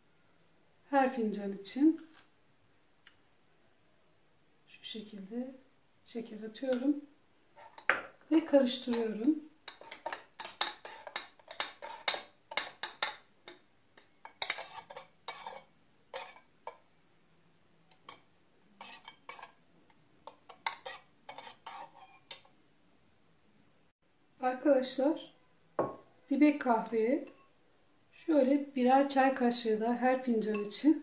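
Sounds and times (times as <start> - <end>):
teaspoon clinking and scraping pot: 7.6 - 16.8, 17.9 - 22.5, 30.4 - 30.8.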